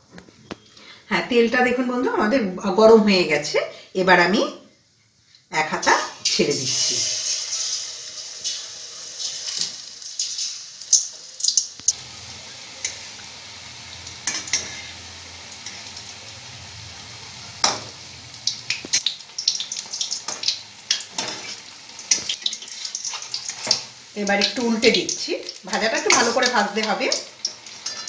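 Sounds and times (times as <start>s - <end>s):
batter sizzling in hot oil: 5.9s - 28.0s
metal spatula scraping wok: 14.1s - 16.0s, 20.3s - 23.8s, 27.7s - 28.0s.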